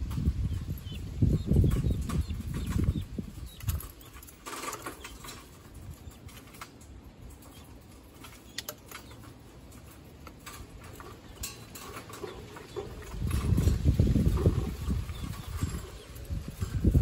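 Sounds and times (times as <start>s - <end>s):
birds pecking taps and clicks: 1.6s - 13.8s.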